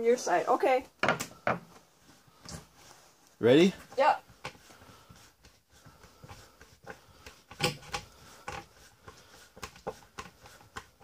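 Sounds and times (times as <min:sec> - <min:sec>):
screwdriver clicking and scraping: 0:07.5 - 0:08.7.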